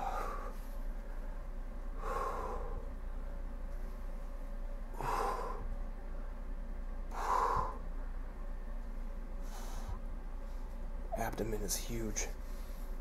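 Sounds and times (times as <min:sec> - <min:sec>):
man breathing out heavily: 0:00.0 - 0:00.7, 0:02.0 - 0:02.9, 0:04.9 - 0:05.8, 0:07.1 - 0:07.9, 0:09.4 - 0:10.0.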